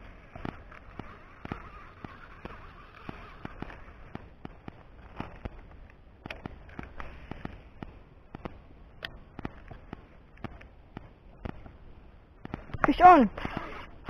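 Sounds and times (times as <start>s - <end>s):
fishing reel clicks and knocks: 0.1s - 7.5s.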